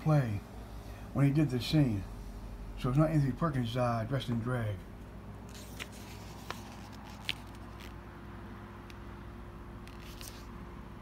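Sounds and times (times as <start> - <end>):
steady low hum: 0.0 - 11.0
book pages turning: 5.5 - 8.0, 9.8 - 10.5
paper rustle: 5.5 - 8.0, 9.9 - 10.5.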